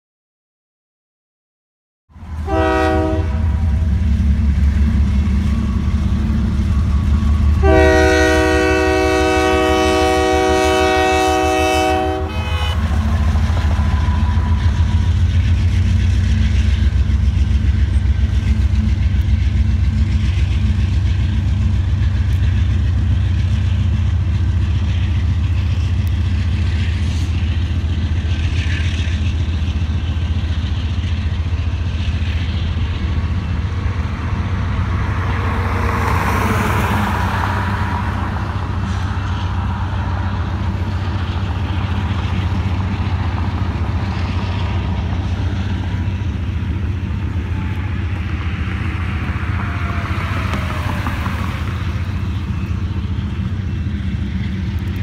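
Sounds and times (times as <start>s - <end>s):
train rumbling past: 2.1s - 55.0s
locomotive air horn blasts: 2.4s - 3.8s, 6.7s - 14.8s.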